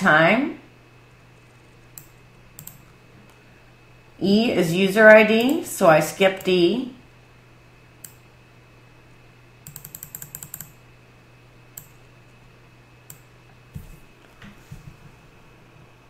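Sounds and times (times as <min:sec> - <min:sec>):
faint steady hum: 0:00.0 - 0:16.0
computer keys and mouse clicking: 0:01.4 - 0:02.9, 0:08.0 - 0:08.2, 0:09.6 - 0:10.8, 0:11.8 - 0:12.0, 0:13.1 - 0:13.3.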